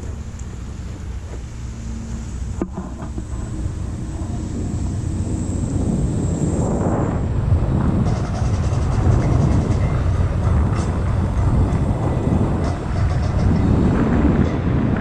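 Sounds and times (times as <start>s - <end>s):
wind buffeting microphone: 0.0s - 15.0s
faint rattling ticks: 7.8s - 14.7s.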